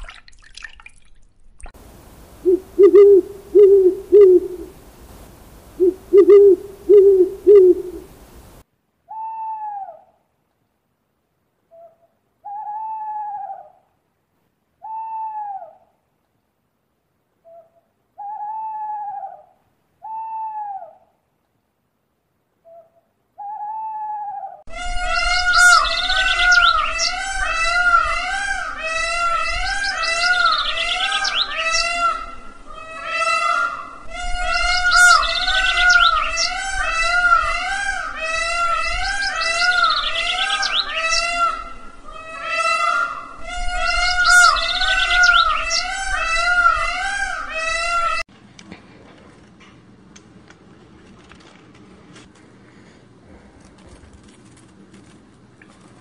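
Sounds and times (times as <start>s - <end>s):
bird calls: 2.4s - 4.8s, 5.7s - 8.4s, 22.6s - 48.2s
bird chirping trills: 2.4s - 4.8s, 5.7s - 8.2s, 24.8s - 28.1s, 29.6s - 32.3s, 34.4s - 37.5s, 43.6s - 46.9s
owl hooting: 2.4s - 4.8s, 5.5s - 10.1s, 17.4s - 21.1s, 22.7s - 48.2s.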